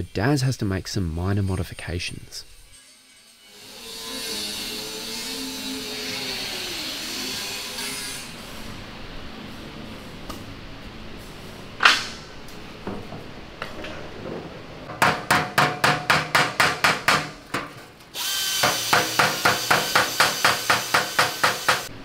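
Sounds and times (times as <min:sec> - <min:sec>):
hammer striking sheet steel: 0:11.8 - 0:12.3, 0:14.8 - 0:17.9, 0:18.6 - 0:21.9
sharp metal clang: 0:11.8 - 0:12.3.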